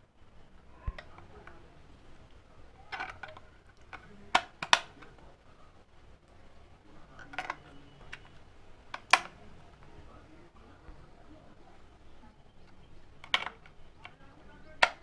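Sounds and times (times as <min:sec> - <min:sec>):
batteries clicking into compartment: 0:02.9 - 0:05.1, 0:07.2 - 0:09.4, 0:12.6 - 0:15.0.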